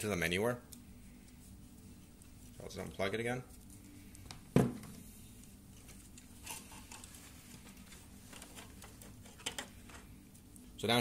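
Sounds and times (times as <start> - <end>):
plastic frame rustling and clicking: 5.8 - 10.1.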